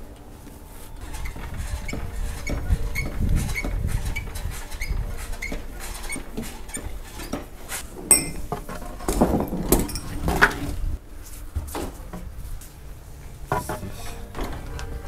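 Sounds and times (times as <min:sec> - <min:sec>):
metal clanking and knocking: 0:01.0 - 0:10.8.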